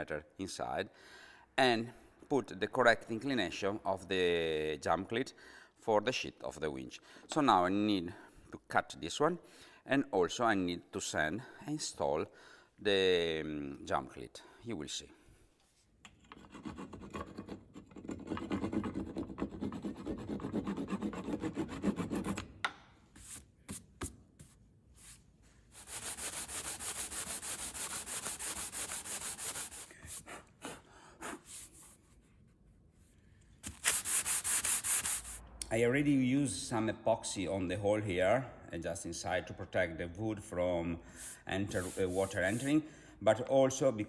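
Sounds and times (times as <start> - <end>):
hand saw strokes on wood: 25.8 - 31.8.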